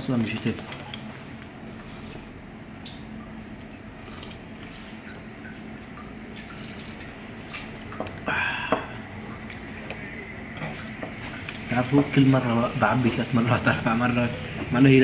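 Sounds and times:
low room hum: 0.0s - 15.0s
loud slurp of soup from a spoon: 1.8s - 2.4s, 3.9s - 4.5s.

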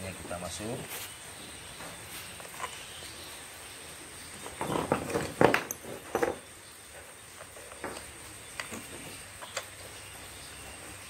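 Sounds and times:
metal tools knocking on wooden floor: 4.6s - 6.5s.

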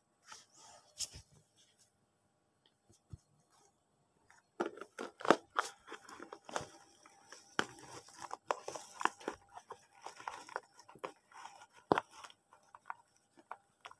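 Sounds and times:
cardboard scraps rustling: 4.7s - 13.5s.

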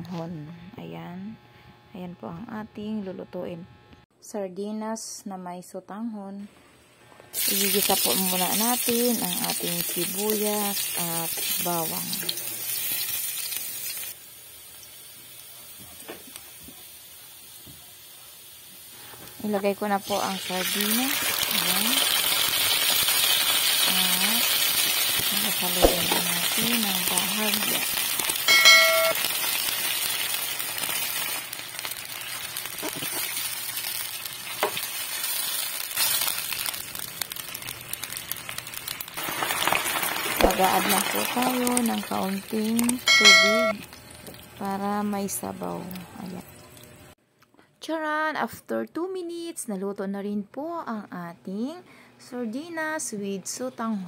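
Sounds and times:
garlic and onion sizzling in oil: 7.3s - 47.2s.

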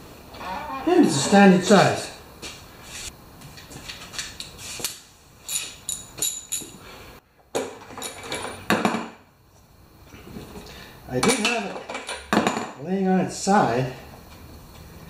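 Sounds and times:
socket wrench metal clinks: 5.5s - 6.8s.

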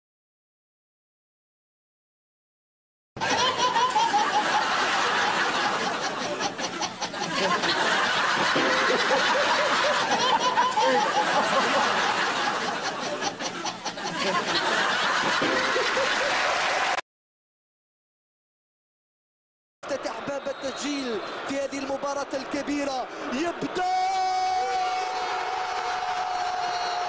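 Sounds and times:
baby laughing: 3.2s - 12.0s, 12.6s - 16.2s.

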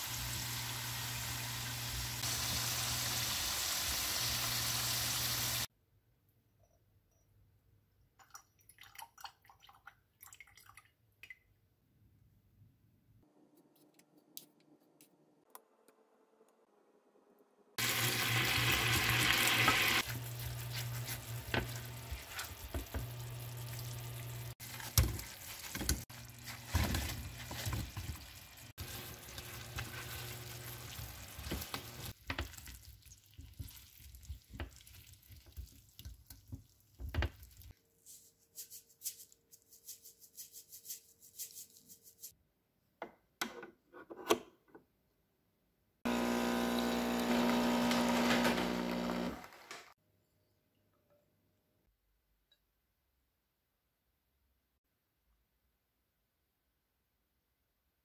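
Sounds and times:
syrup sizzling and bubbling: 17.8s - 37.7s.

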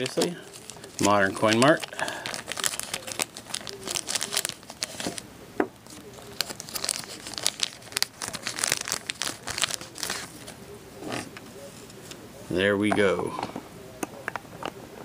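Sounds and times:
plastic bag crinkling: 0.0s - 5.2s, 5.8s - 10.6s.

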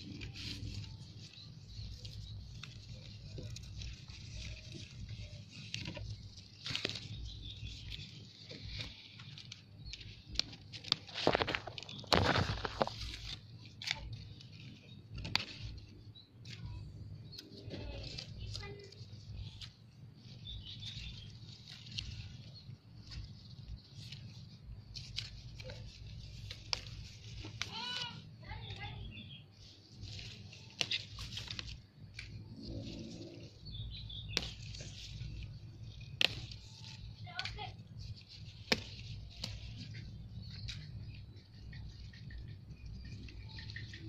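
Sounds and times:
leaves and twigs brushing: 0.0s - 44.0s
faint bird chirps: 39.8s - 44.0s.

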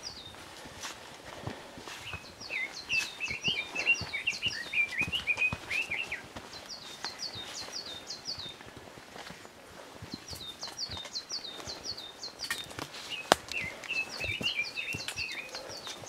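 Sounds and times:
footsteps on trail: 0.0s - 16.0s
bird twittering: 2.0s - 8.6s, 10.3s - 16.0s.

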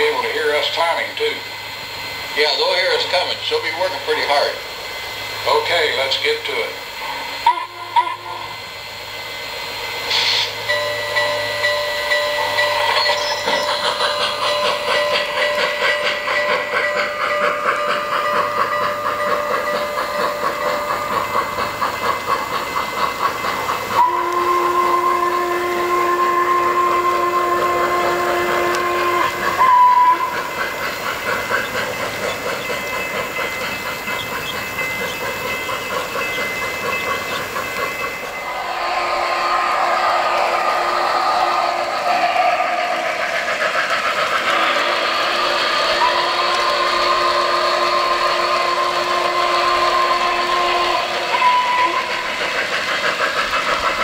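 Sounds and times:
steam hiss: 0.0s - 54.0s
steam locomotive chuffing: 0.0s - 54.0s
train whistle: 7.1s - 8.7s, 10.1s - 14.8s, 23.9s - 32.6s, 38.4s - 43.2s, 44.5s - 52.7s.

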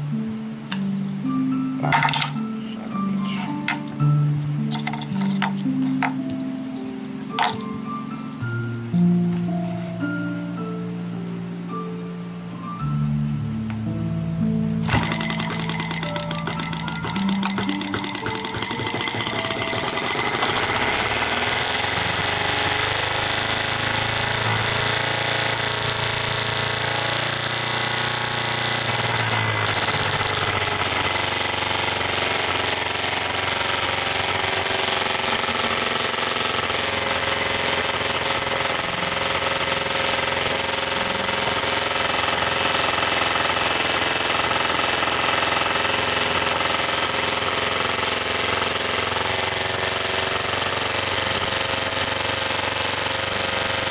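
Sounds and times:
miniature engine clattering: 4.7s - 6.2s, 7.3s - 7.6s, 14.8s - 53.9s.

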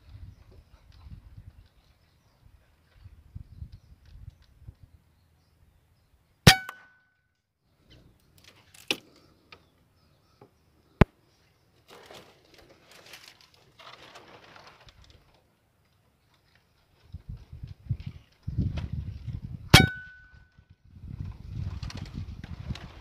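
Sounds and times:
air rifle shot with metallic ring: 6.5s - 7.0s, 19.7s - 20.3s
soft rustling: 11.8s - 15.5s.

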